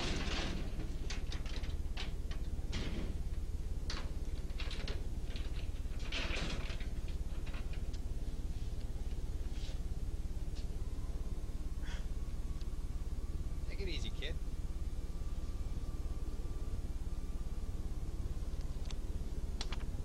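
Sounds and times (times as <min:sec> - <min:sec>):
low electrical hum: 0:00.0 - 0:20.0
rustles: 0:03.9 - 0:10.8.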